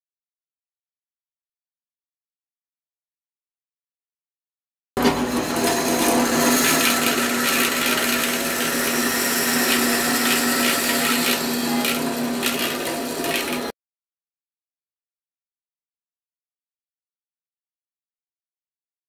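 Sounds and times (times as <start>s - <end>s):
bandsaw motor hum: 5.0s - 13.7s
saw blade rasping in wood: 5.0s - 13.7s.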